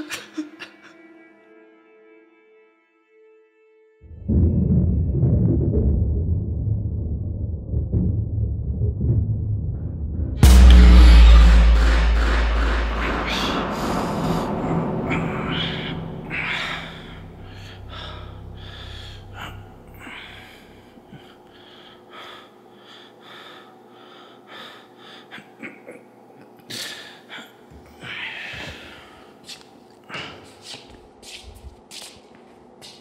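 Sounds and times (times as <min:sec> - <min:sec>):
deep boom rumble: 0:04.1 - 0:20.4
low drone: 0:04.1 - 0:21.2.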